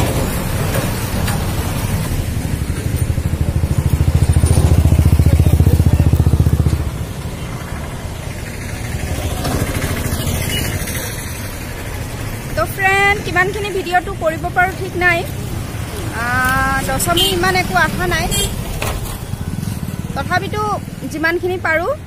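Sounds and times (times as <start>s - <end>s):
background traffic: 0.0s - 22.0s
vehicle engine passing: 0.0s - 22.0s.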